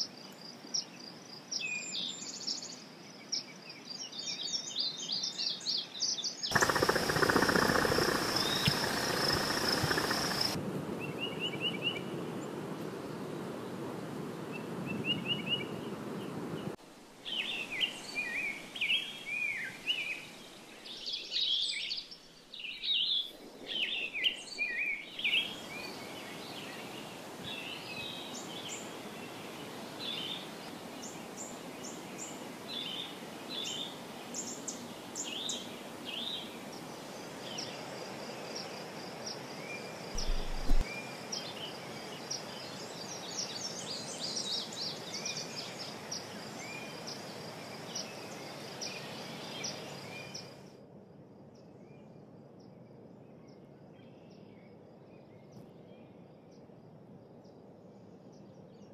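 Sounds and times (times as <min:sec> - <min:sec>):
birds chirping: 0:06.5 - 0:10.6, 0:40.2 - 0:40.9
steady hiss: 0:06.5 - 0:10.6, 0:40.2 - 0:41.0.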